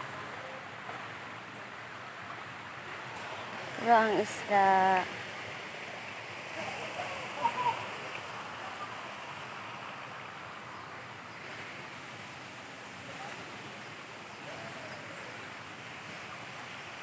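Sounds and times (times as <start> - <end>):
running water rushing: 0.0 - 17.0.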